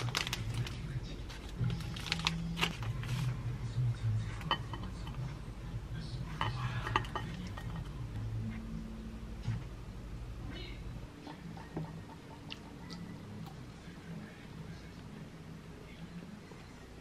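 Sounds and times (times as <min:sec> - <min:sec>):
paper snack pouch rustling: 0:00.0 - 0:03.4.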